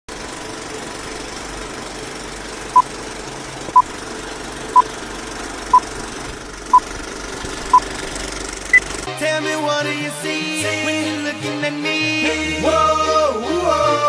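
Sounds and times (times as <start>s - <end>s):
film projector rattle and hiss: 0.1s - 9.1s.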